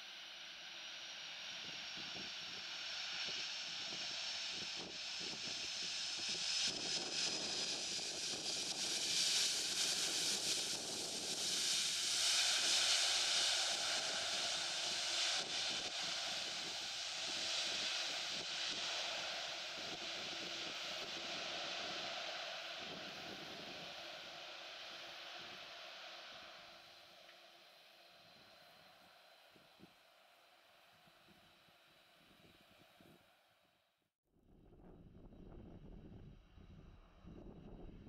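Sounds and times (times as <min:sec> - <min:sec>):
high turbine whine: 0:00.0 - 0:33.2.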